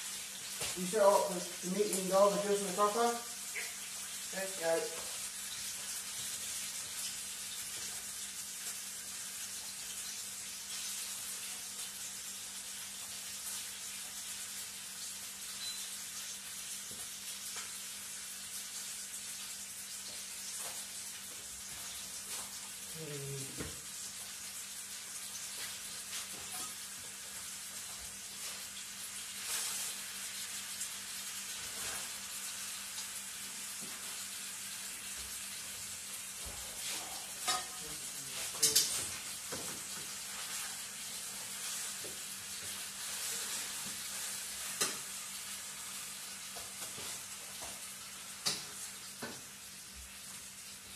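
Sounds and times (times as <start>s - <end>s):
meat and vegetables sizzling in a pan: 0.0s - 50.9s.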